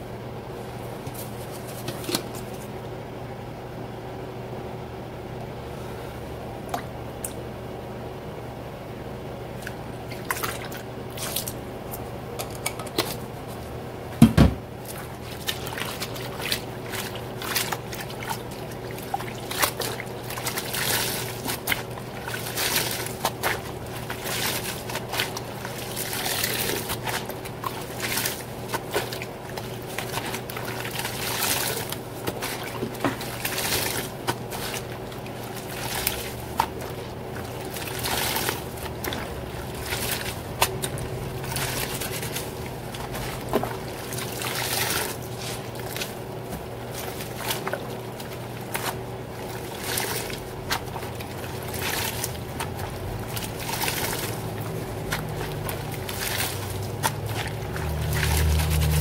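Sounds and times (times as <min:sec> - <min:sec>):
wet towels splashing and squelching: 0:09.5 - 0:12.0, 0:14.7 - 0:59.0.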